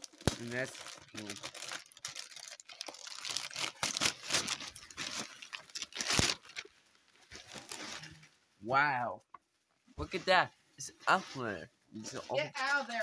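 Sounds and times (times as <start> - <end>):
wrapping paper tearing and crumpling: 0.0 - 8.2.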